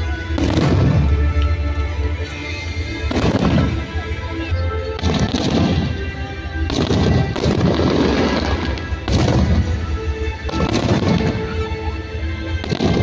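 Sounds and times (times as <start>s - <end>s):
fireworks bursting and crackling: 0.0s - 13.0s
music: 0.0s - 13.0s.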